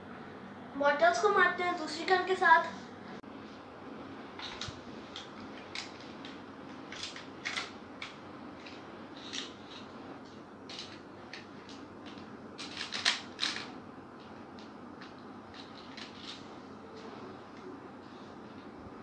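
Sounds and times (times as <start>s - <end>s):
toy pistol clicking and rattling: 10.7s - 13.7s.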